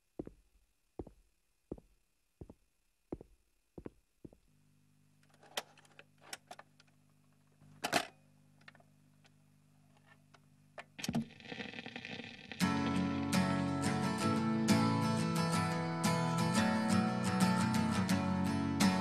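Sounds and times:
faint steady hum: 0.0s - 14.6s
strummed guitar music: 12.6s - 19.0s.

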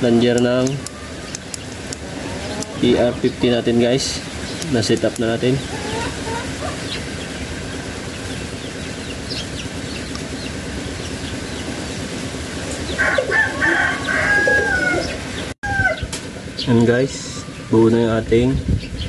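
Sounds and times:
rooster crowing: 2.1s - 2.9s, 12.9s - 16.1s.

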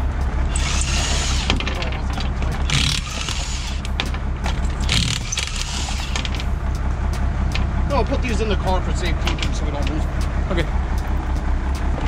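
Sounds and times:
truck engine idling: 0.0s - 12.0s
impact wrench hammering: 0.5s - 1.7s, 2.6s - 4.0s, 4.8s - 6.4s.

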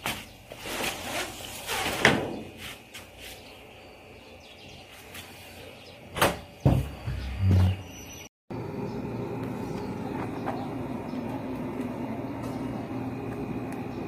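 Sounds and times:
sliding door scraping on metal track: 0.5s - 2.7s.

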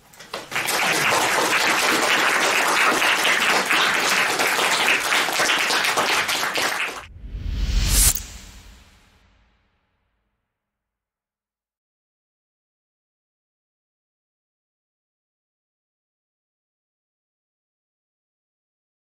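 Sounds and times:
audience applauding: 0.3s - 7.1s
rising whoosh transition effect: 7.1s - 9.4s.

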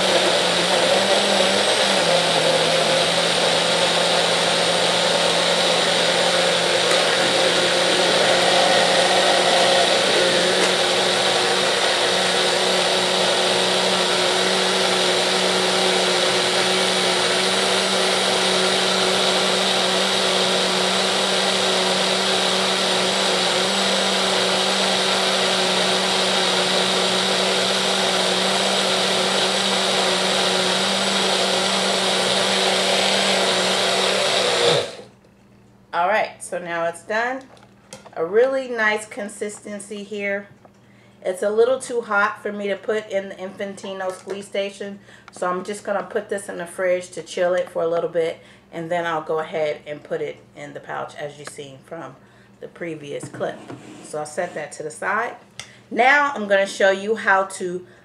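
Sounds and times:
blender motor hum: 0.0s - 35.1s.

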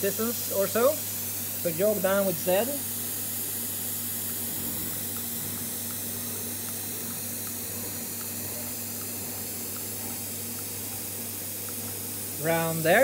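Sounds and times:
machinery hiss and hum: 0.0s - 13.0s
faint ticking: 4.2s - 12.7s.

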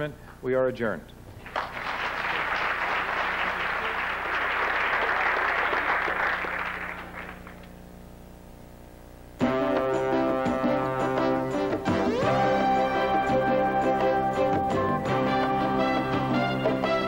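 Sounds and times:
audience applauding: 1.4s - 7.7s.

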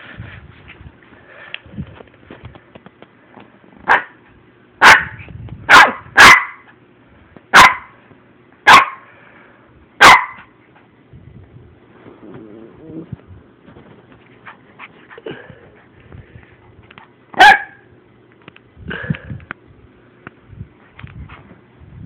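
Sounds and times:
puppy barking: 3.9s - 4.2s, 4.8s - 6.8s, 7.5s - 8.0s, 8.7s - 9.1s, 10.0s - 10.6s, 17.4s - 17.9s.

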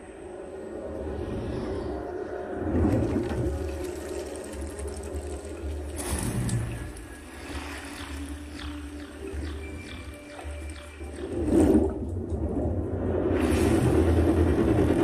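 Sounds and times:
deep rumble: 11.2s - 15.0s.

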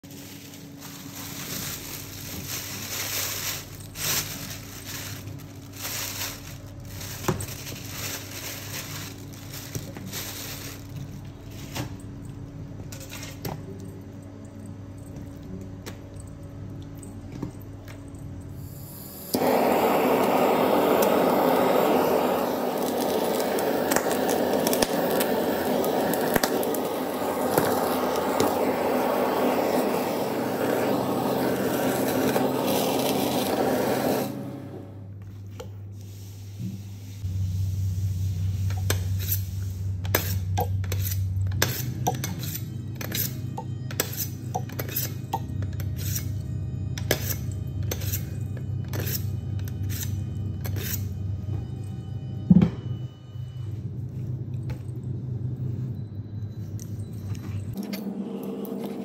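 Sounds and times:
blowtorch hissing: 18.6s - 35.0s.

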